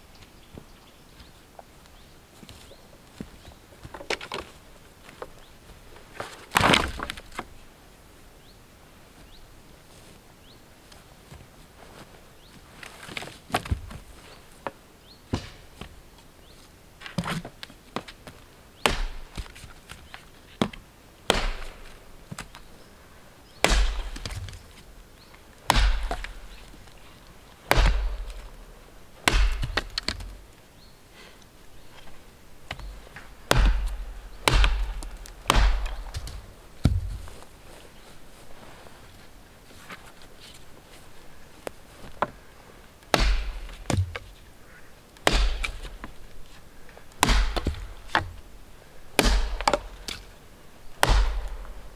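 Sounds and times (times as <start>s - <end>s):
axe chopping a log: 15.3s - 15.7s, 18.8s - 19.6s, 21.3s - 22.5s, 23.6s - 24.6s, 25.7s - 26.7s, 27.7s - 28.6s, 29.2s - 30.4s, 33.5s - 37.3s, 43.1s - 44.3s, 45.2s - 46.2s, 47.2s - 48.4s, 49.2s - 50.3s, 51.0s - 51.8s.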